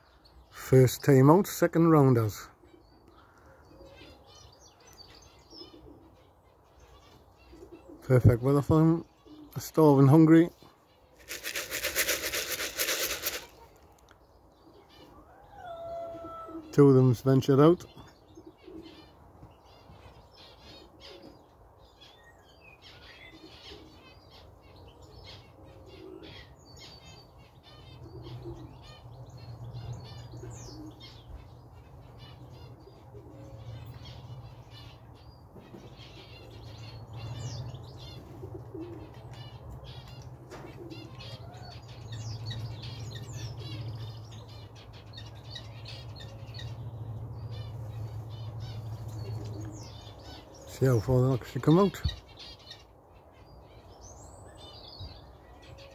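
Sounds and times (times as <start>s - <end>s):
small birds chirping: 0.0s - 55.9s
pigeons cooing: 2.1s - 6.4s, 7.0s - 10.5s, 11.1s - 21.8s, 22.8s - 52.6s.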